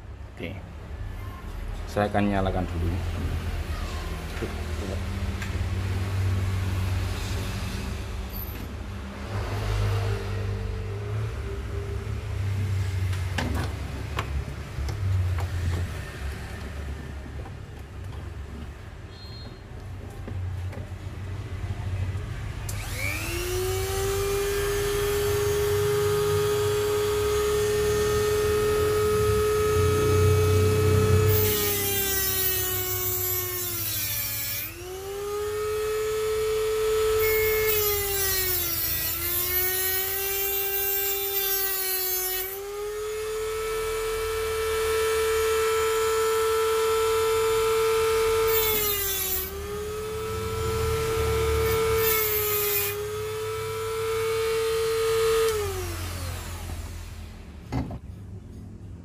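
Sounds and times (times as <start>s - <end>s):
drill bit grinding on disc: 22.7s - 57.1s
rotary tool running at high speed: 22.7s - 57.4s.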